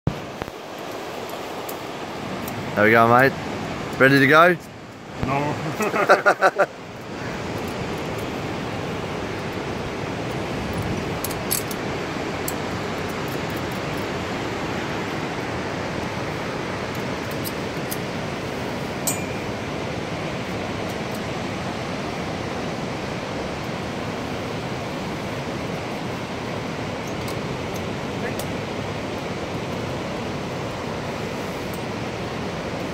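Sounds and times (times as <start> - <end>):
rushing water roar: 0.1 - 32.9
carabiners clinking: 10.3 - 14.1, 19.0 - 19.5.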